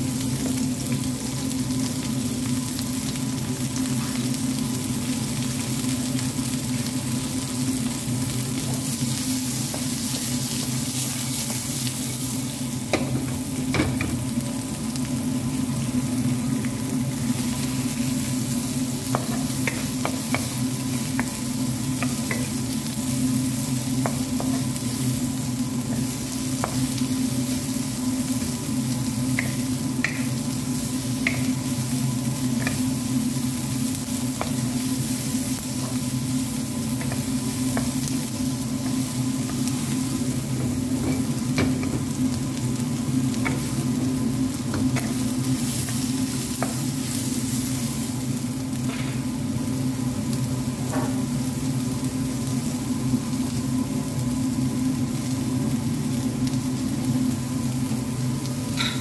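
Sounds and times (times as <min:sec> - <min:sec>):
steady low hum: 0:00.0 - 0:50.2
vegetables sizzling in a frying pan: 0:00.0 - 0:59.0
spatula tapping and scraping pan: 0:19.1 - 0:21.4.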